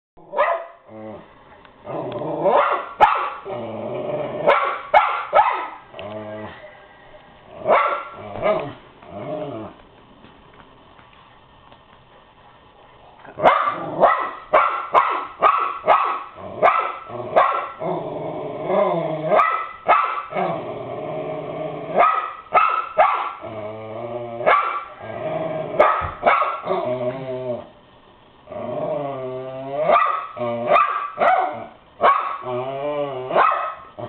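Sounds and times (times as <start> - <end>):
dog growling: 0.2 - 2.6, 3.4 - 4.6, 5.9 - 6.7, 7.5 - 9.8, 13.2 - 14.2, 16.3 - 19.5, 20.3 - 22.0, 23.4 - 25.9, 26.6 - 27.7, 28.5 - 30.9, 32.4 - 34.0
dog barking: 0.3 - 0.8, 2.5 - 3.4, 4.5 - 5.8, 7.7 - 8.2, 13.4 - 17.8, 19.4 - 20.3, 22.0 - 23.4, 24.5 - 24.9, 25.8 - 26.7, 29.9 - 32.4, 33.4 - 33.9.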